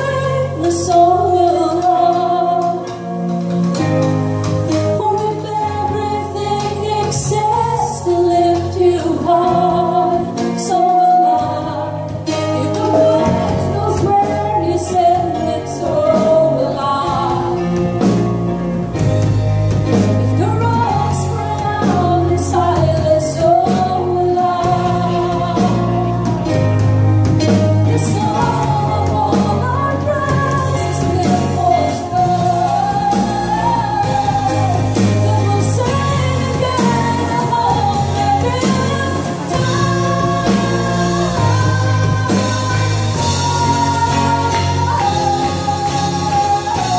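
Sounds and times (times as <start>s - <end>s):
women singing: 0.0s - 3.2s, 4.8s - 18.2s, 20.0s - 26.8s, 27.8s - 46.9s
drum kit with cymbals: 0.0s - 46.9s
guitar: 0.0s - 46.9s
keyboard: 0.0s - 46.9s.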